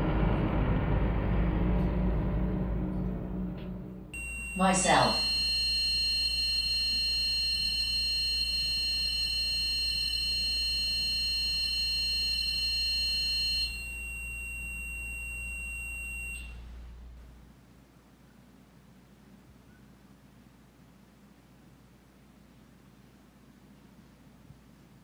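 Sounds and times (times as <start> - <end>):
high electronic alarm tone: 4.2 - 16.7.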